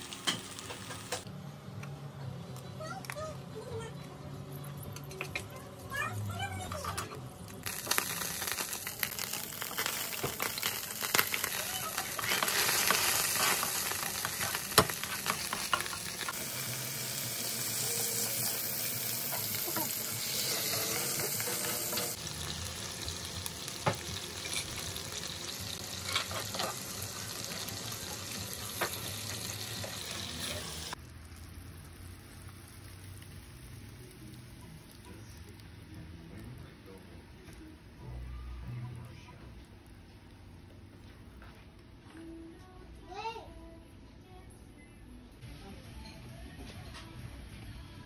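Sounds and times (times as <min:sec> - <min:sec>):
garlic sizzling in a frying pan: 0:00.0 - 0:01.2, 0:07.5 - 0:35.8.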